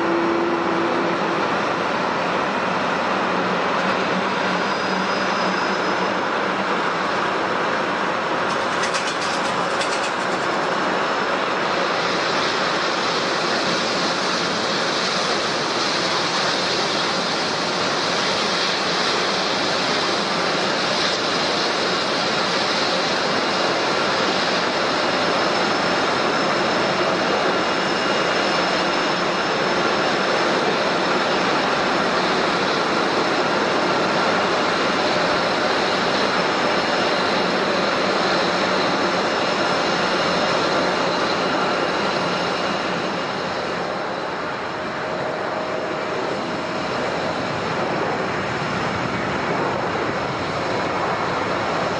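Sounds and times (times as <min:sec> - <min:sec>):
jet engines rushing: 0:00.0 - 0:51.9
faint high whine: 0:03.7 - 0:07.4.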